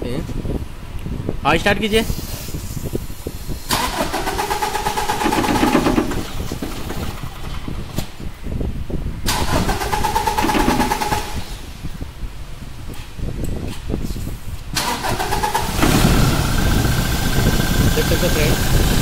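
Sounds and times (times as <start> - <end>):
diesel engine cranking: 3.6 - 8.2, 9.2 - 12.0, 14.7 - 19.0.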